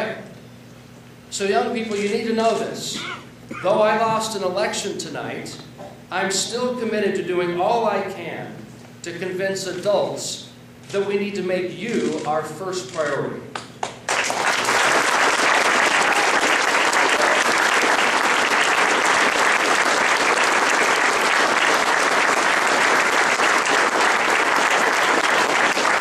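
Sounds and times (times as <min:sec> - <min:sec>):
crowd applauding: 0:13.8 - 0:26.0
crowd cheering: 0:14.2 - 0:26.0.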